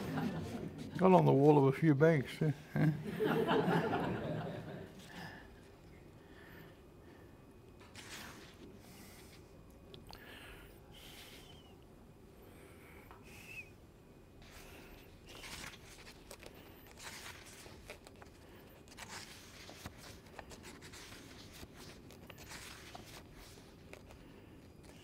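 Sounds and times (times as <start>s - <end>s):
book pages rustling: 7.8s - 9.4s, 14.4s - 25.0s.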